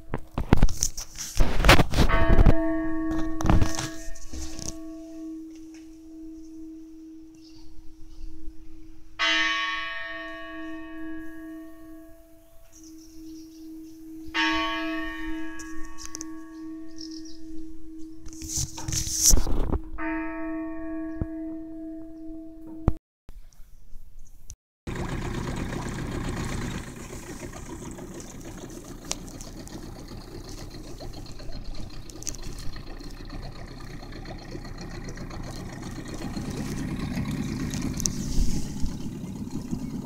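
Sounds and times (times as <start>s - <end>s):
brief loud rustling: 0.4s - 2.6s
large church bell tolling: 2.1s - 18.2s, 19.9s - 23.0s.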